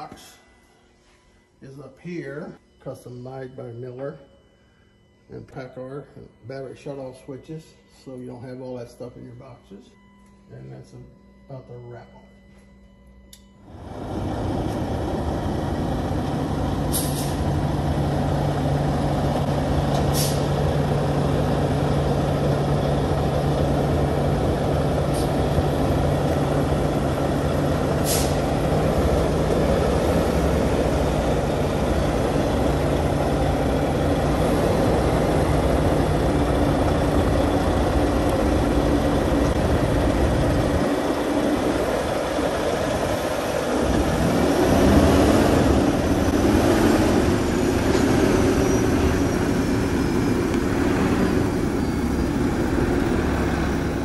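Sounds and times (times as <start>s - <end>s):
diesel truck engine running: 13.6s - 54.0s
air hisses: 16.9s - 17.4s, 20.0s - 20.6s, 28.0s - 28.5s.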